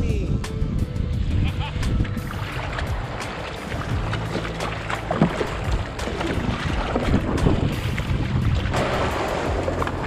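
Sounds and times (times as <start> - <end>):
wind buffeting microphone: 0.0 - 10.0
kayak paddle splashing water: 1.7 - 10.0.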